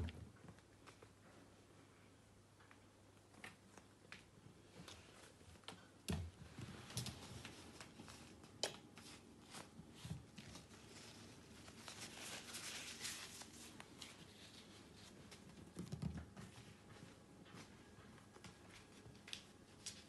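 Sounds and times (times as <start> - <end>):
kitten paws tapping on floor: 12.5 - 20.0.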